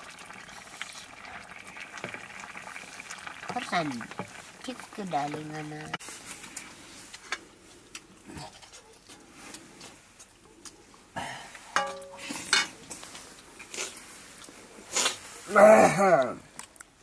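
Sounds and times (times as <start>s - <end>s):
metal plates and spoon clinking: 11.8s - 12.8s.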